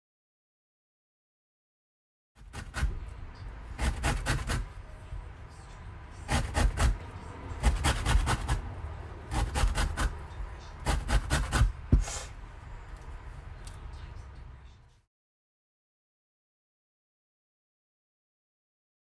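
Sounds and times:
lemon scraping on metal grater: 2.4 - 3.1, 3.8 - 4.7, 6.2 - 7.0, 7.6 - 8.6, 9.3 - 10.2, 10.8 - 11.8.

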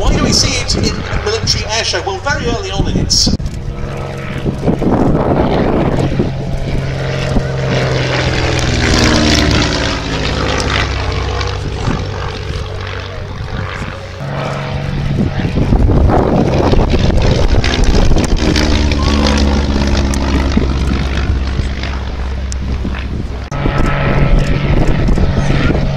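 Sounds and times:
propeller aircraft flying past: 0.0 - 25.9.

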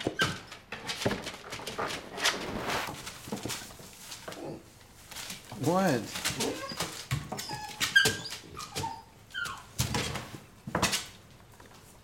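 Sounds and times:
puppy whining: 4.3 - 4.8, 6.3 - 9.8.

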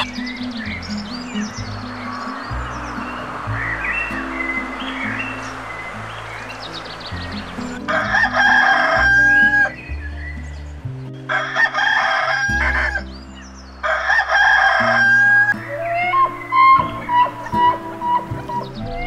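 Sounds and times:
soft background music: 0.0 - 19.0
rooster crowing: 7.8 - 9.8, 11.3 - 13.0, 13.8 - 19.0.

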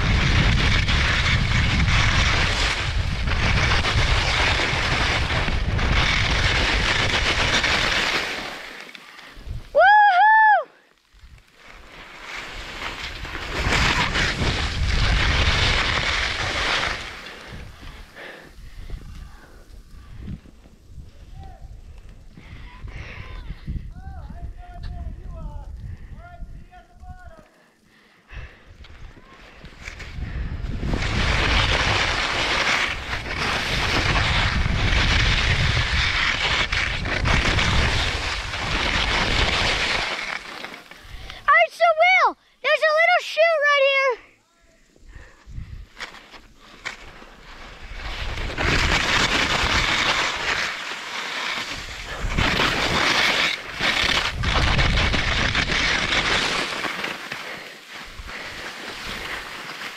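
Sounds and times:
wind rumbling on microphone: 0.0 - 8.0, 9.4 - 10.0, 12.5 - 27.4, 28.3 - 40.2, 44.9 - 46.0, 47.0 - 50.8, 51.6 - 56.7
skis scraping across snow: 0.0 - 9.7, 11.0 - 23.4, 26.6 - 42.1, 44.7 - 59.9.

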